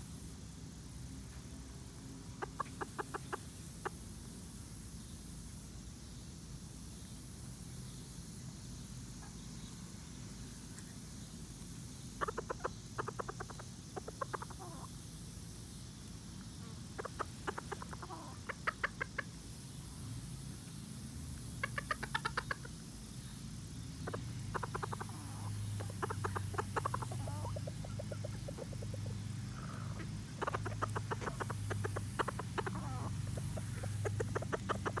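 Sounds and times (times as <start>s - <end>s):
chickens clucking rapidly: 2.2s - 4.6s, 11.7s - 35.0s.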